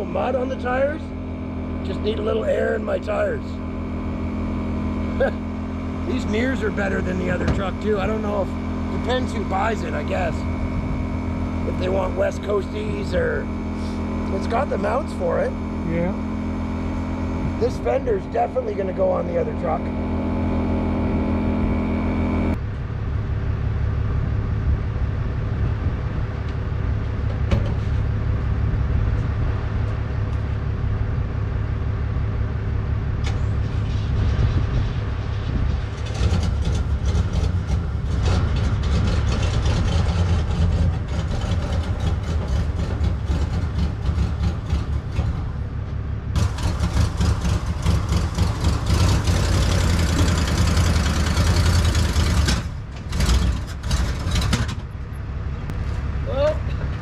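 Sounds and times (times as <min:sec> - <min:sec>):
engine droning: 0:00.0 - 0:57.0.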